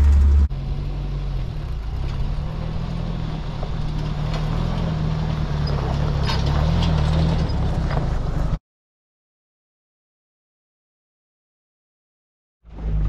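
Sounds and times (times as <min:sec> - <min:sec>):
car engine at low speed: 0:00.0 - 0:08.6, 0:12.7 - 0:13.0.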